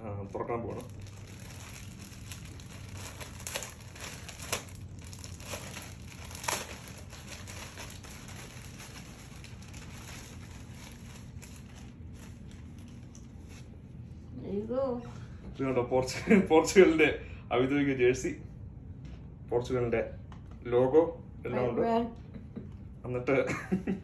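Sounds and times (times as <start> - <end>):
plastic bag crinkling: 0.1 - 13.5.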